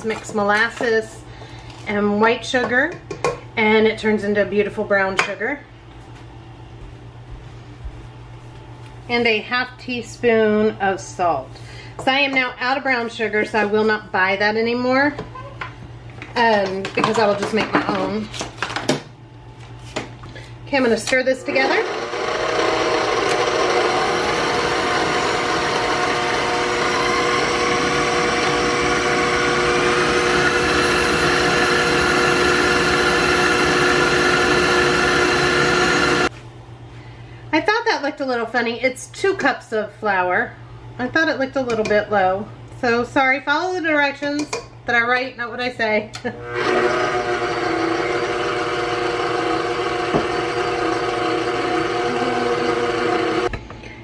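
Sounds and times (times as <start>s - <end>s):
stand mixer motor whine: 21.4s - 36.3s, 46.4s - 53.5s.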